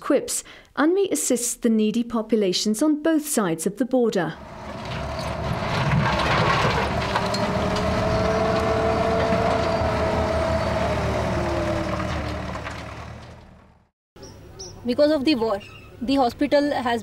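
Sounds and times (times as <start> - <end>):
diesel engine under load: 4.4 - 13.9.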